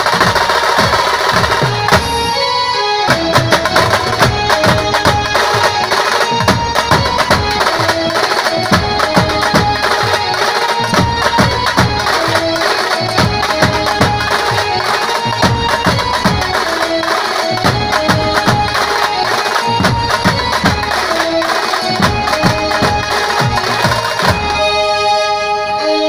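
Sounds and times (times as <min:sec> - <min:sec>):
drums beating driving rhythm: 0:00.0 - 0:24.9.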